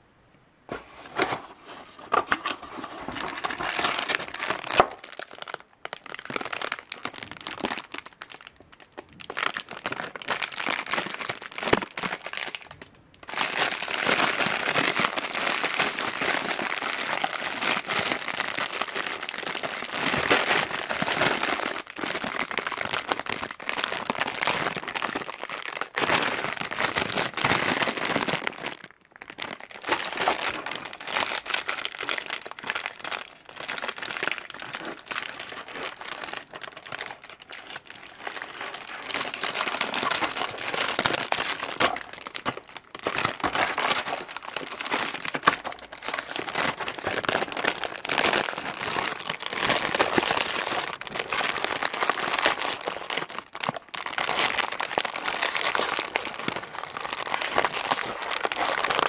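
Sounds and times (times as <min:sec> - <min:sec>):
plastic packaging crinkling: 0:01.0 - 0:59.0.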